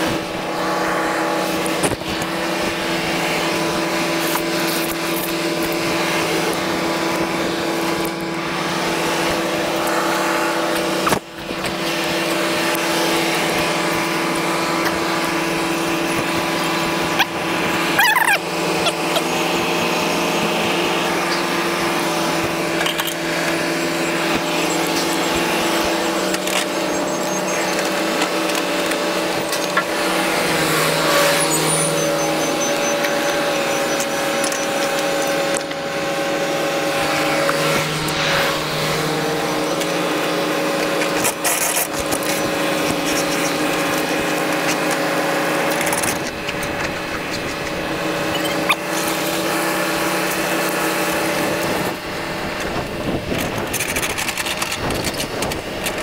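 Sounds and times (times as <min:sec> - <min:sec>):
engine humming: 0:00.0 - 0:56.0
squeal sliding in pitch: 0:24.0 - 0:28.1, 0:31.0 - 0:34.8, 0:48.2 - 0:49.2.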